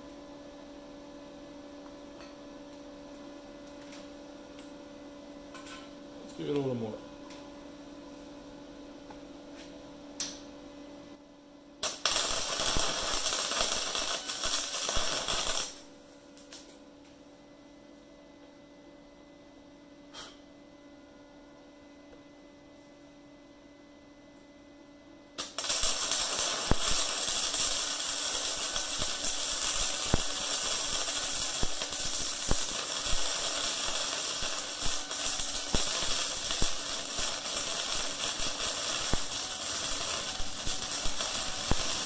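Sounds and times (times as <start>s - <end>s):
faint hum: 0.0s - 42.0s
welder arc crackling with pops: 11.8s - 16.8s, 25.4s - 42.0s.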